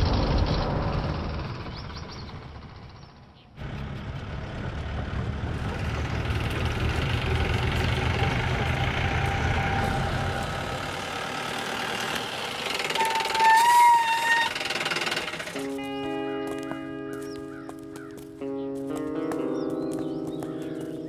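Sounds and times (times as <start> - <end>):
vehicle engine rumbling: 0.0 - 21.0.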